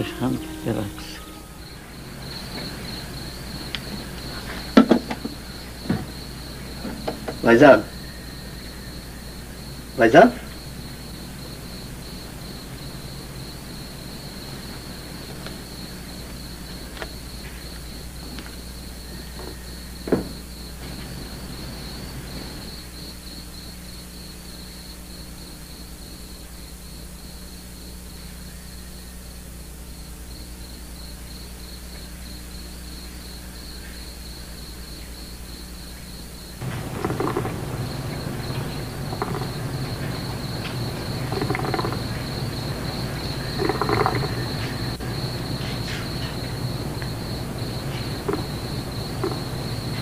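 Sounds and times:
low hum: 0:00.0 - 0:07.2, 0:36.6 - 0:50.0
crickets trilling: 0:00.0 - 0:50.0.

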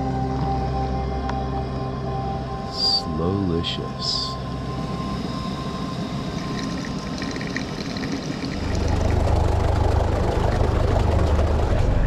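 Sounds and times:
boat engine idling: 0:05.7 - 0:12.0
coffee pouring into a flask: 0:06.4 - 0:09.2.

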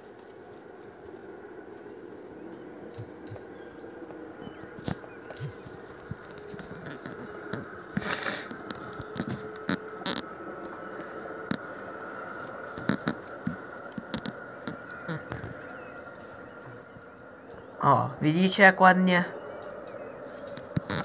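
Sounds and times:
sharp taps and clicks: 0:12.4 - 0:15.6, 0:19.6 - 0:21.0.

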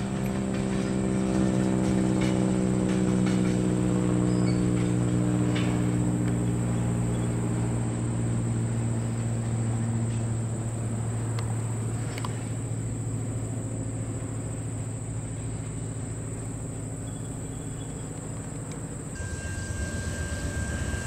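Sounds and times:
freight train rolling past: 0:00.0 - 0:16.8, 0:18.9 - 0:21.0
train wheel clicks: 0:00.1 - 0:06.4, 0:18.2 - 0:21.0
high insect trill: 0:00.1 - 0:21.0.

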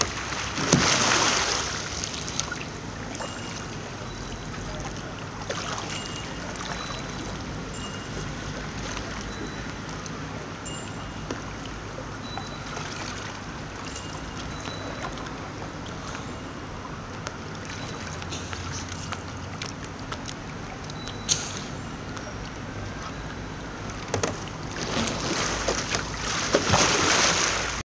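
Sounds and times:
paddle splashes: 0:00.0 - 0:03.8, 0:04.8 - 0:07.3, 0:24.0 - 0:27.8
water lapping: 0:00.0 - 0:27.8.

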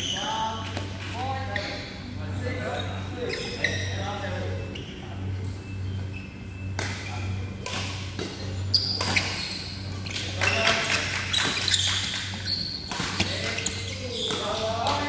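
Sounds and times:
court shoes squeaking: 0:00.0 - 0:15.0
low hall hum: 0:00.0 - 0:15.0
rackets hitting shuttlecock: 0:11.0 - 0:15.0.

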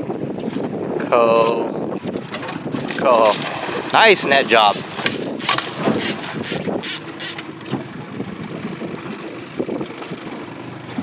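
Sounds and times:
boat motor running: 0:00.0 - 0:11.0
wind buffeting microphone: 0:00.0 - 0:11.0.

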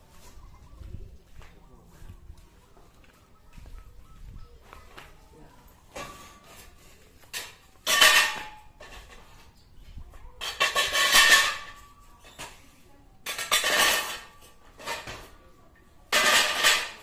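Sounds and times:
metal pipes clanking: 0:07.3 - 0:09.3, 0:13.2 - 0:15.2, 0:16.1 - 0:17.0.

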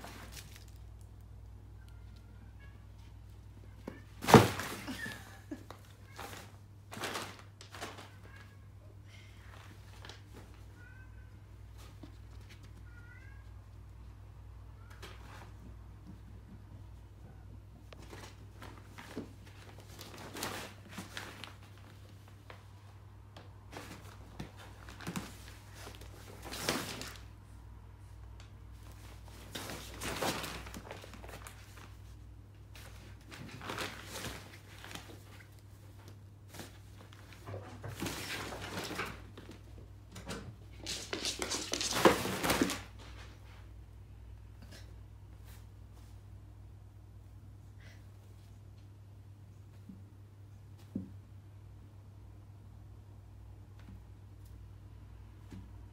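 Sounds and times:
kittens scrabbling on fabric: 0:28.5 - 0:43.8.

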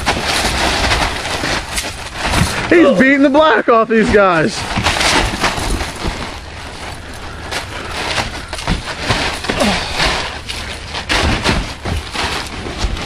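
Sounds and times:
constant rushing noise: 0:00.0 - 0:13.0
wrestlers scuffling: 0:00.0 - 0:13.0
thuds of bodies landing: 0:04.0 - 0:13.0.

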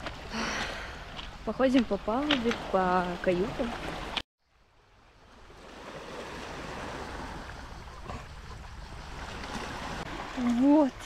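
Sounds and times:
waves washing on pebbles: 0:00.0 - 0:04.2.

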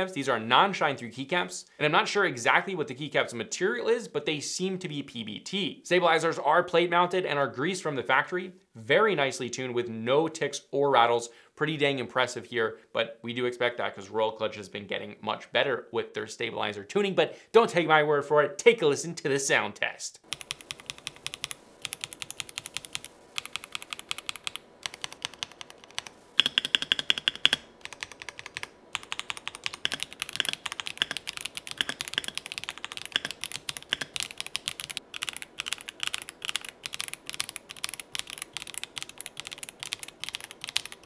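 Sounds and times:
mechanical keyboard typing: 0:20.3 - 0:41.0.

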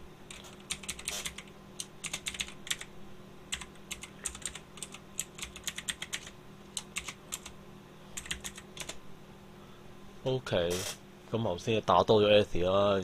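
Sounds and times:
faint low hum: 0:00.0 - 0:13.0
keyboard typing: 0:00.3 - 0:02.9, 0:03.5 - 0:07.6, 0:08.2 - 0:09.0.

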